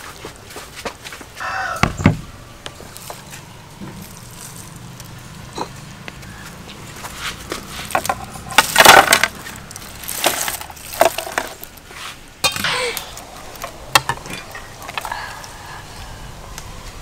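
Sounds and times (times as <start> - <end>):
metal ladle clattering: 7.9 - 11.6, 12.4 - 13.2
dishes and utensils clinking: 12.4 - 13.1.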